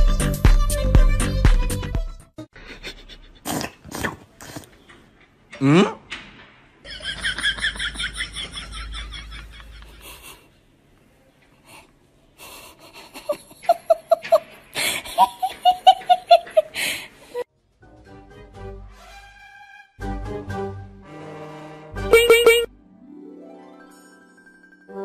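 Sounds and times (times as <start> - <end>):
person laughing: 2.6 - 3.5, 6.9 - 10.5, 12.5 - 17.4.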